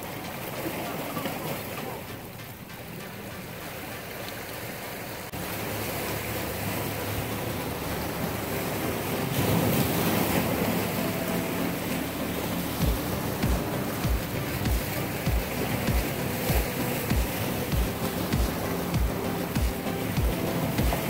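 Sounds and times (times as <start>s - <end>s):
surf washing against rocks: 0.0s - 21.0s
wind on microphone: 5.4s - 21.0s.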